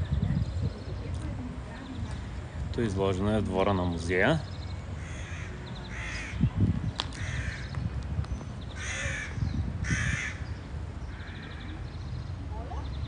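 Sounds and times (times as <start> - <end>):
crows cawing: 5.0 - 6.4, 7.2 - 7.7, 8.8 - 11.7.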